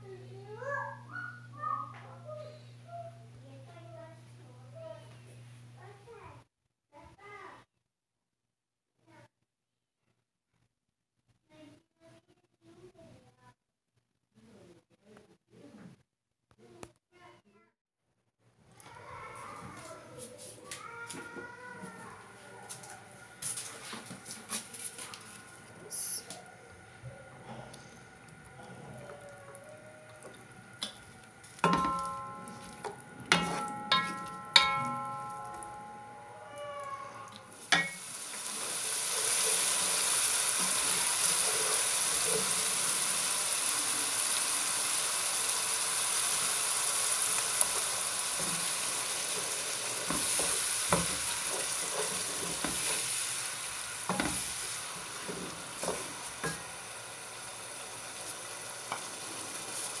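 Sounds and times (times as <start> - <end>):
onions sizzling in oil: 22.2 - 60.0
spatula scraping a pan: 30.2 - 35.4, 47.7 - 56.7
cookware clinking: 30.8 - 36.4, 37.2 - 38.0, 55.3 - 56.7.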